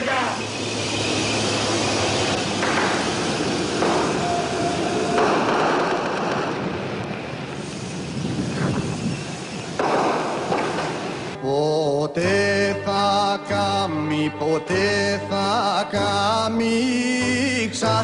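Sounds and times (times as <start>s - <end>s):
steady tone: 0.0s - 5.2s
dense rushing noise: 0.0s - 11.4s.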